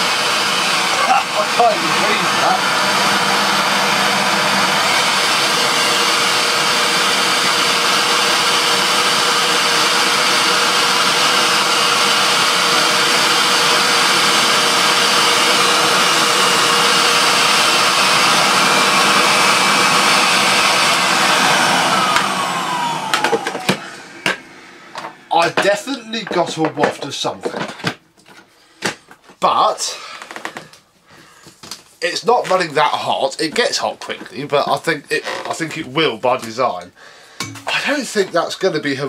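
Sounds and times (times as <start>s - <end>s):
motor winding down: 0.0s - 25.6s
vacuum cleaner running: 0.0s - 27.7s, 37.4s - 38.0s.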